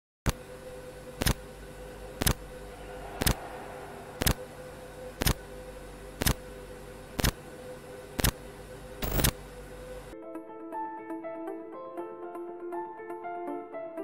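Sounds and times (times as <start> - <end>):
steady hiss with hum: 0.3 - 10.2
piano music: 10.1 - 14.0.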